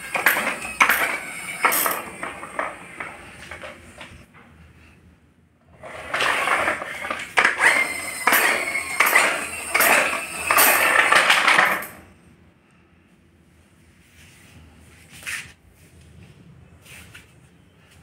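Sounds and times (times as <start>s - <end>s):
toy wheels rolling on tiles: 0.0s - 4.2s, 5.7s - 12.1s.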